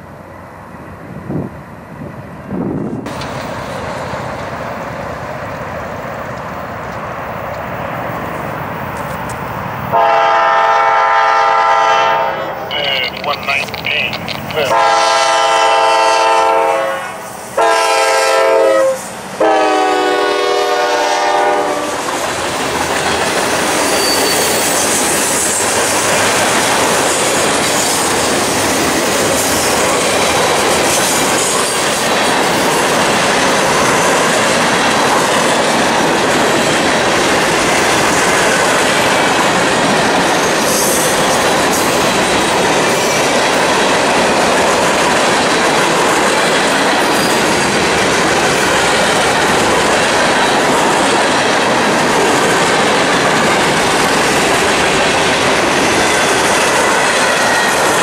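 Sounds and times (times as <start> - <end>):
freight cars rolling on rails: 2.8 - 10.0, 12.6 - 15.6, 21.4 - 58.0
locomotive horn blasts: 9.9 - 12.6, 14.6 - 22.0.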